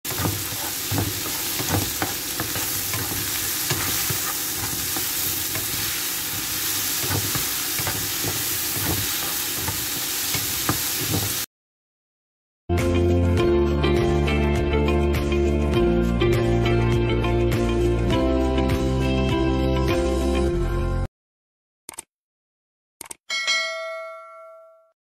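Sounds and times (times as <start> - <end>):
spatula scraping and clicking on pan: 0.1 - 11.4
chilies sizzling in hot oil: 0.1 - 11.5.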